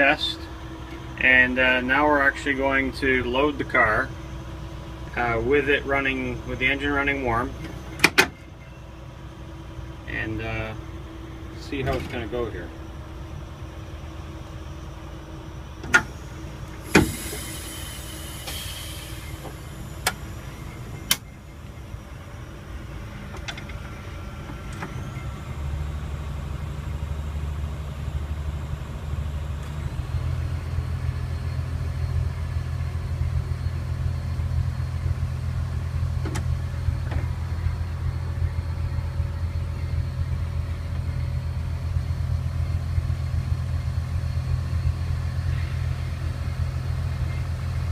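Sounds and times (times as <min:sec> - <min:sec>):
rail car diesel engine drone: 0:00.0 - 0:47.9
brief hiss: 0:16.8 - 0:20.1.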